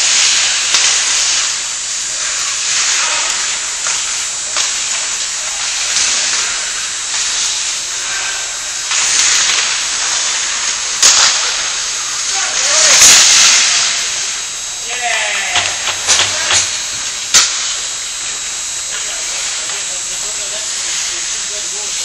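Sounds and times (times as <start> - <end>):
skate blades scraping ice: 2.2 - 16.8.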